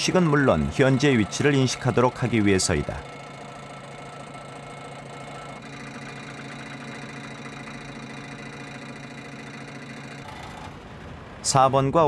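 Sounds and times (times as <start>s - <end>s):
truck engine idling: 0.0s - 11.4s.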